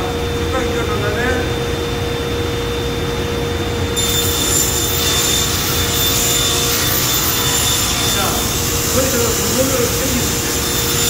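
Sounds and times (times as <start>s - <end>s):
table saw humming: 3.8s - 11.0s
saw blade cutting wood: 4.0s - 11.0s.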